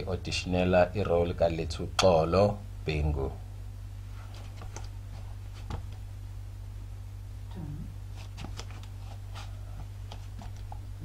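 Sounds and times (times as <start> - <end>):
low hum: 0.0 - 11.0
faint clicks and rustles: 4.0 - 6.1, 8.1 - 11.0.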